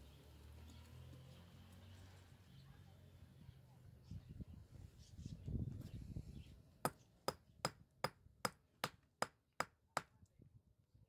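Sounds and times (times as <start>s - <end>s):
hammer striking stone: 6.8s - 10.1s.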